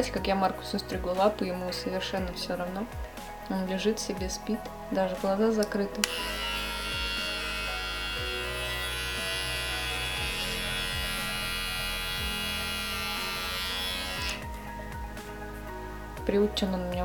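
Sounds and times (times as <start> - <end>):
electric pet clipper buzzing: 6.0 - 14.5.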